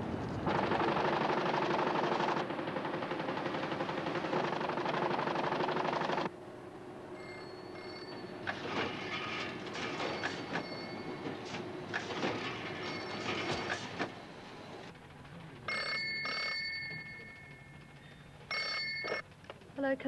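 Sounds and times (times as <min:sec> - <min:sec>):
telephone ringing: 0:07.2 - 0:11.5, 0:12.5 - 0:13.8, 0:15.6 - 0:19.3.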